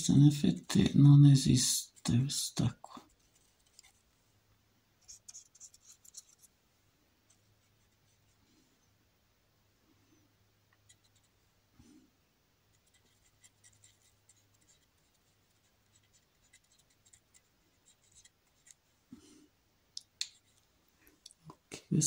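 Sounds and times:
faint low hum: 0:00.0 - 0:22.0
paintbrush scratching on canvas: 0:05.0 - 0:06.5, 0:12.7 - 0:18.8.

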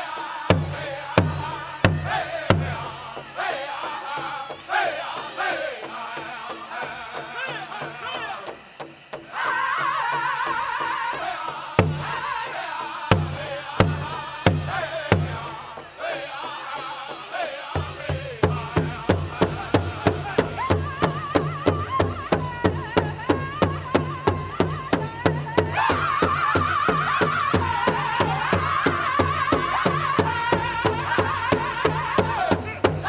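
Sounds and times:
high wavering voices singing: 0:00.0 - 0:08.6, 0:09.3 - 0:33.0
large bass drum beats: 0:00.5 - 0:03.3, 0:11.8 - 0:12.4.

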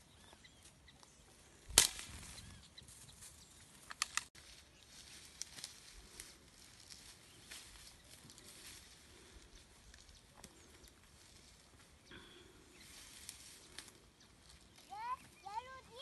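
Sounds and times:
footsteps through dry grass: 0:00.0 - 0:16.0.

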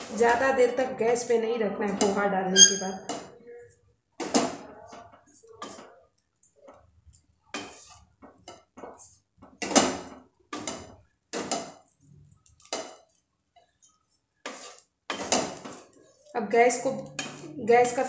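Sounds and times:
wooden spatula scraping a pan: 0:04.2 - 0:06.0, 0:07.5 - 0:18.0.

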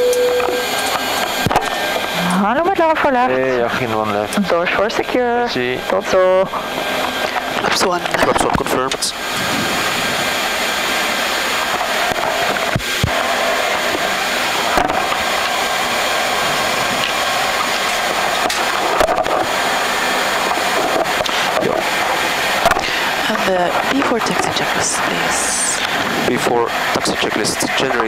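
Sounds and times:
aircraft engines idling: 0:00.0 - 0:28.0.

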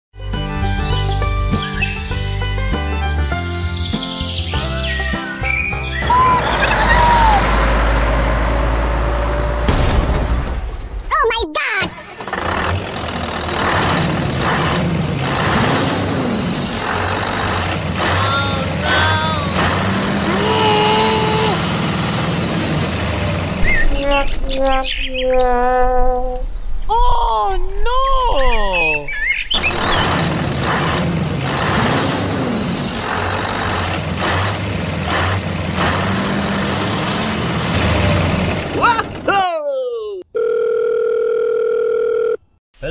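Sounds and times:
truck engine hum: 0:04.5 - 0:11.1, 0:11.9 - 0:24.6, 0:29.6 - 0:40.3.

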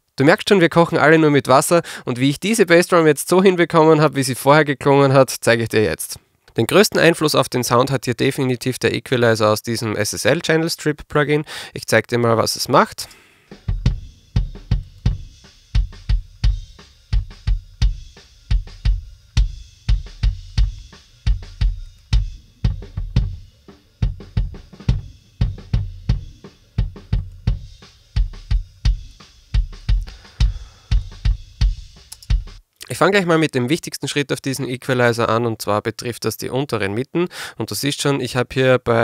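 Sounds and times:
faint snare and cymbal: 0:13.0 - 0:32.7
kick drum thumps: 0:13.6 - 0:32.6.

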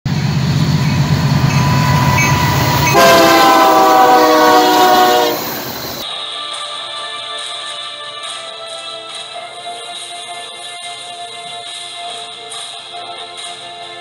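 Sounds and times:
diesel locomotive engine rumble: 0:00.0 - 0:06.0
multi-note air horn: 0:00.7 - 0:06.0.

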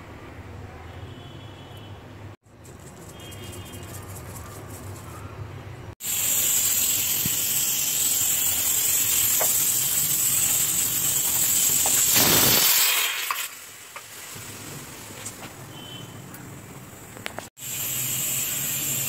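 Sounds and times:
pressure cooker steam hissing: 0:06.0 - 0:13.8, 0:17.6 - 0:19.0.

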